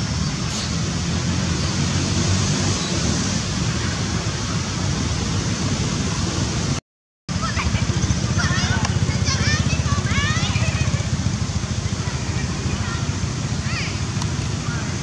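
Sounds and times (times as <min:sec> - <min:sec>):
wind on microphone: 0:00.0 - 0:06.8
small motorbike passing: 0:00.0 - 0:15.0.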